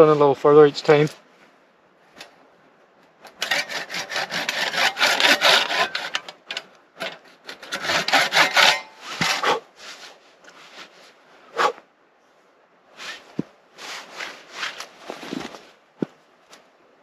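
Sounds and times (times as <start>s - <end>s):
pull saw cutting wood: 3.3s - 9.6s.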